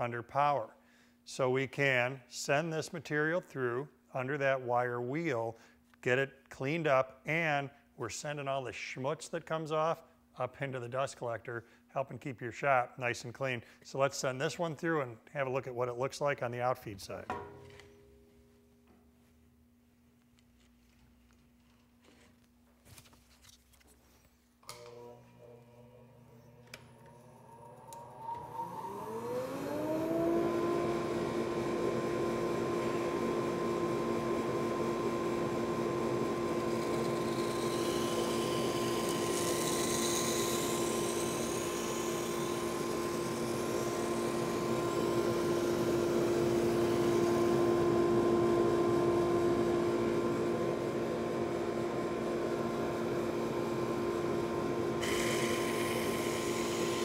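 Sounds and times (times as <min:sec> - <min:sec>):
wire brush sander whining: 0:25.8 - 0:48.3, 0:55.0 - 0:57.0
wire wheel scratching wood: 0:36.8 - 0:42.4.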